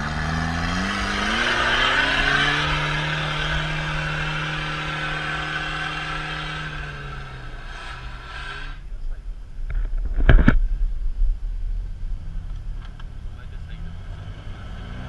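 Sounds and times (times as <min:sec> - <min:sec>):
pickup engine revving under load: 0:00.0 - 0:08.8, 0:12.0 - 0:15.0.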